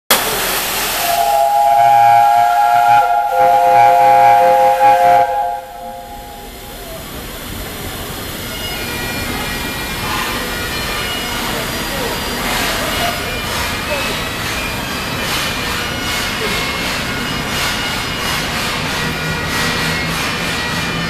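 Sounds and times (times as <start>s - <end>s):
steam hissing: 0.1s - 21.0s
steam locomotive whistle: 0.1s - 21.0s.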